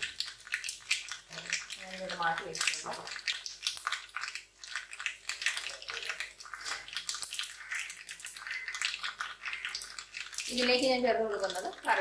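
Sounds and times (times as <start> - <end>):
seeds sizzling and popping in oil: 0.0 - 12.0.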